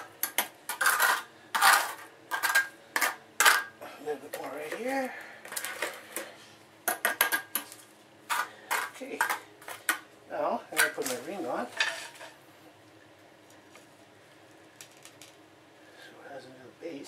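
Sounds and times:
trowel scraping and clinking: 0.0s - 3.7s.

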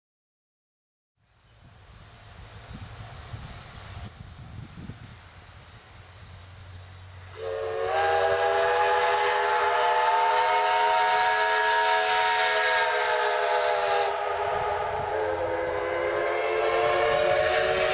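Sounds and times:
steady high hiss: 1.2s - 17.9s
steam locomotive whistle: 7.3s - 17.9s.

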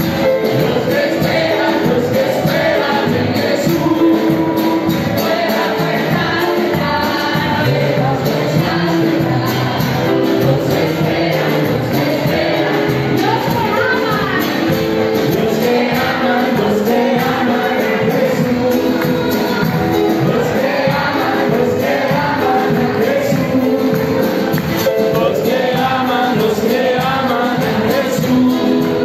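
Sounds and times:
upbeat worship music with singing: 0.0s - 29.0s
hands clapping: 18.2s - 20.4s, 22.8s - 25.5s.

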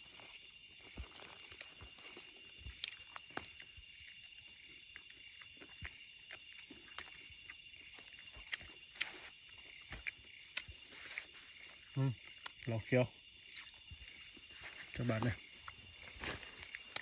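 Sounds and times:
taps and rustles on dry leaves: 0.0s - 3.6s, 14.0s - 17.0s
insects chirring: 0.0s - 17.0s.

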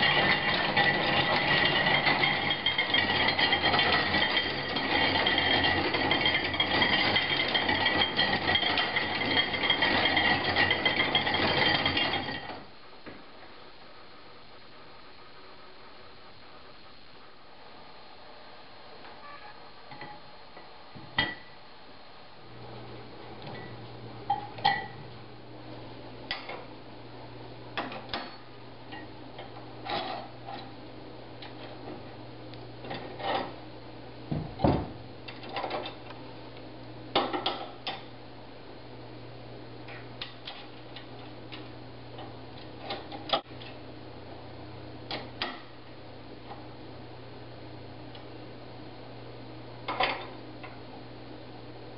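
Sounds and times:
low steady hum: 0.0s - 51.9s.

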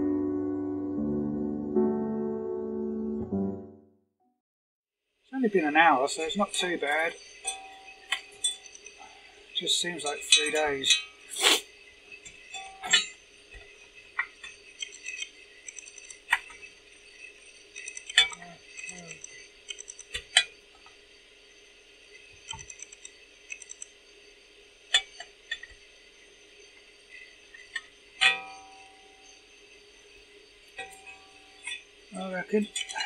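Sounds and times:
metallic clicks and clinks: 9.8s - 11.2s, 12.2s - 16.7s, 17.3s - 20.5s, 22.4s - 23.9s.

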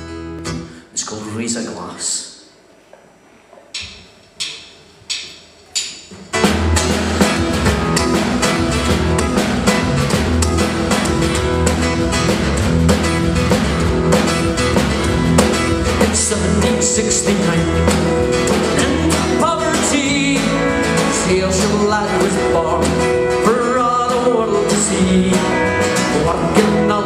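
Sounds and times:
live rock band playing: 6.2s - 27.0s
person singing: 16.0s - 27.0s.

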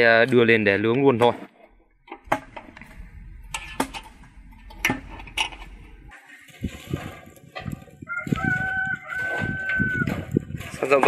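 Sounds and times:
dull low knocks: 1.9s - 6.1s
rooster crowing: 8.0s - 10.2s.

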